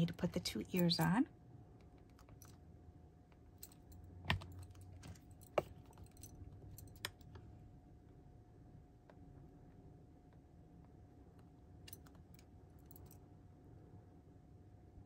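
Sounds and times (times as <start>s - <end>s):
faint steady hum: 0.0s - 15.0s
light taps and clicks of handling: 3.3s - 7.5s.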